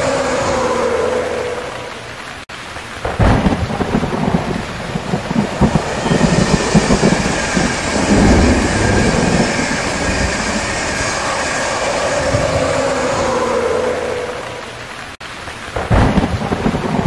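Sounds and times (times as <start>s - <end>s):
train rumbling past on rails: 3.4s - 14.9s.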